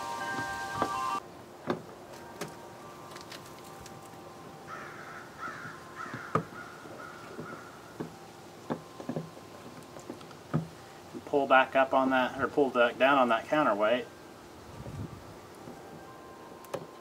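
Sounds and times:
bird harsh calls: 4.7 - 8.0.

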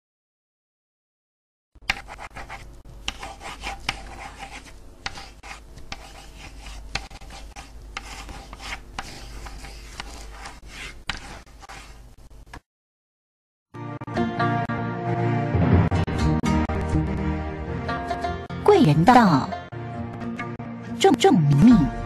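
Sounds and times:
pen scratching on paper: 1.9 - 12.0.

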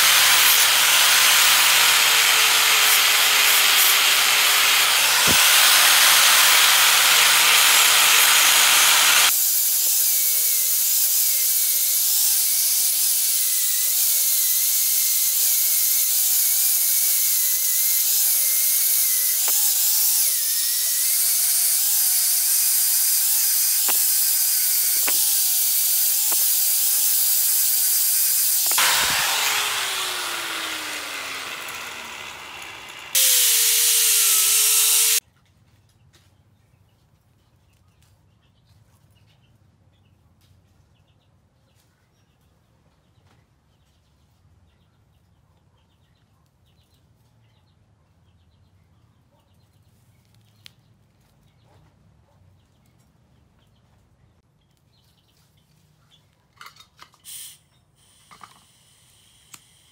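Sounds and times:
angle grinder on steel: 0.0 - 35.2.

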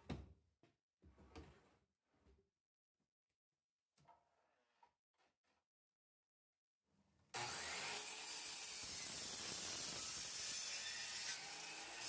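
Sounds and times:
miter saw cutting wood: 7.4 - 12.0.

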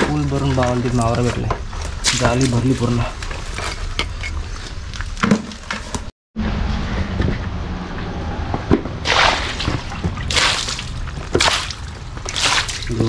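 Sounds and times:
water sloshing and splashing: 9.0 - 13.0.

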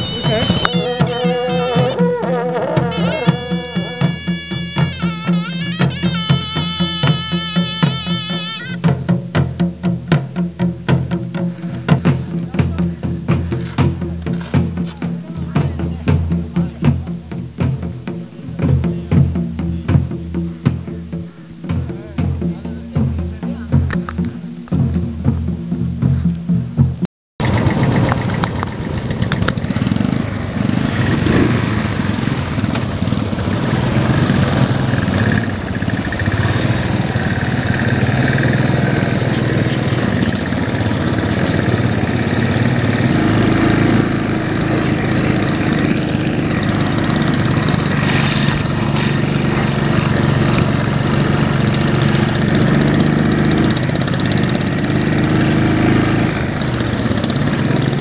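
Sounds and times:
motorcycle engine running: 0.0 - 58.0
other motorcycles nearby: 0.0 - 58.0.

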